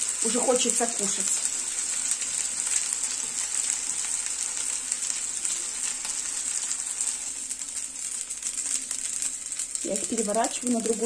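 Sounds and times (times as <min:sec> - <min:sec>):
chicken frying in hot oil: 0:00.0 - 0:11.0.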